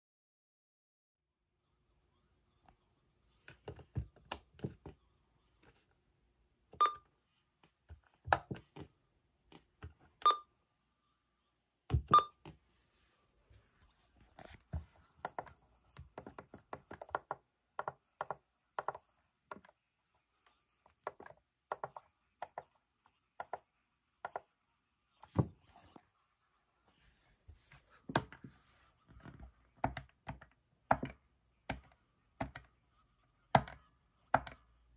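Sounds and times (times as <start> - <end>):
plastic buttons clicking: 33.6 - 33.8.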